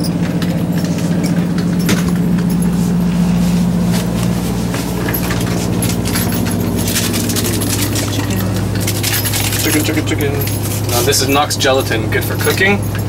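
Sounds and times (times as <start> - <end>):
low machine hum: 0.0 - 13.0
bowl and cup clinking: 4.8 - 11.6.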